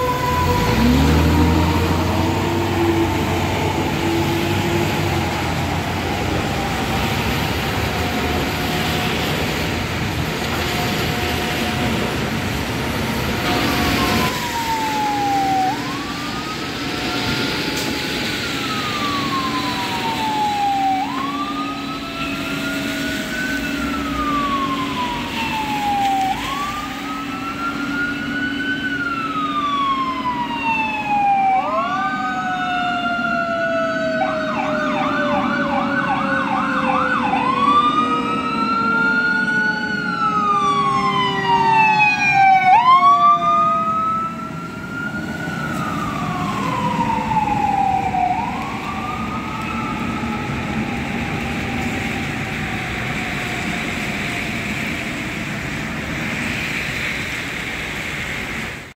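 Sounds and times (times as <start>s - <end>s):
mechanical siren winding down: 0.0s - 8.9s, 13.5s - 54.7s
electronic siren wailing and yelping: 13.5s - 54.2s.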